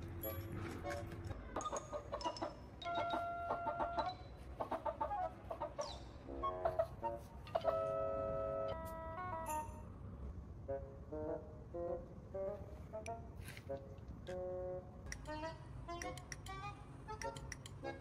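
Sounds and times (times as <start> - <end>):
hen clucking: 1.6 - 6.0.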